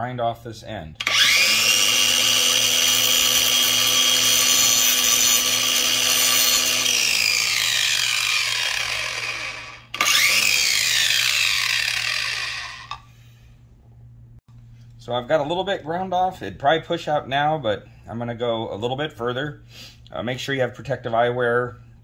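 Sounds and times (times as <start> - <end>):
angle grinder grinding metal: 1.0 - 13.0.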